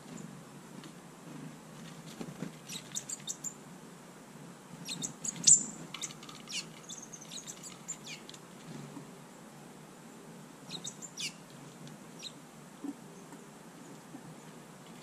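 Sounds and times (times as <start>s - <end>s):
birds chirping and clicking: 2.6s - 3.5s, 4.9s - 8.4s, 10.7s - 11.4s.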